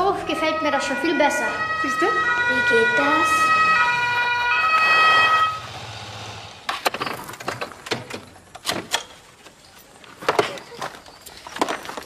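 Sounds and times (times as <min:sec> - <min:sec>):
police two-tone siren: 0:00.0 - 0:06.0.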